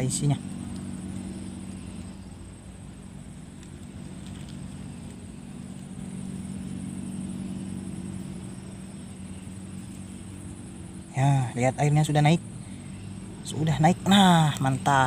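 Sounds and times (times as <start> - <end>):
engine hum: 0.0 - 15.0.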